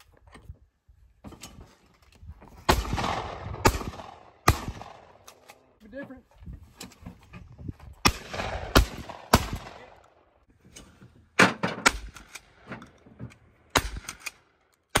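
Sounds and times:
shotgun shots with echo: 2.7 - 5.2, 8.0 - 10.0.

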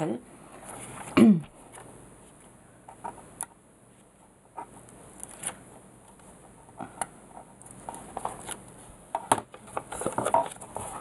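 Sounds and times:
paper rustling: 3.9 - 6.3, 7.4 - 8.9, 9.6 - 11.0.

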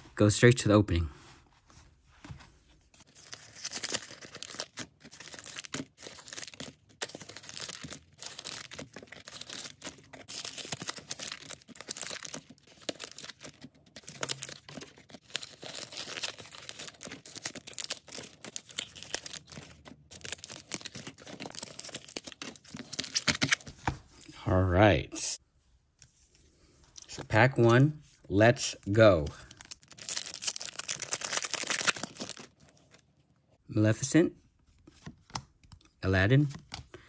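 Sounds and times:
foil wrappers rustling: 3.0 - 23.7, 29.4 - 33.0
plastic sleeves crinkling and tearing: 3.0 - 23.7, 29.4 - 33.0.

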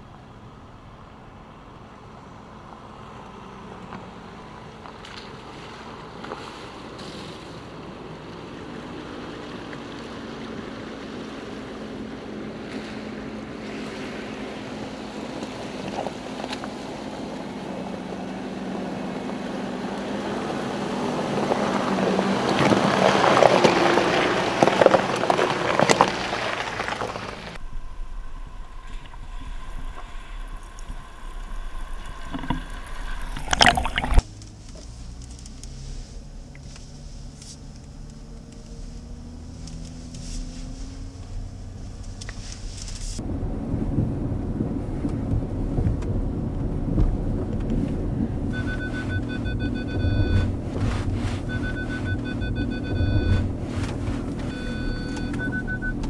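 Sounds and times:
car engine running: 0.0 - 56.0
water sloshing and splashing: 4.8 - 43.2, 44.0 - 56.0
cabin hum: 35.6 - 56.0.

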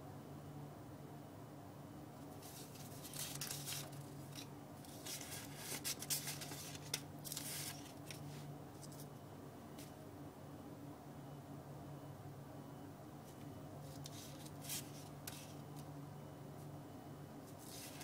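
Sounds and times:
faint low hum: 0.0 - 18.0
paper strips rustling: 2.4 - 9.1, 13.8 - 15.9, 17.5 - 18.0.

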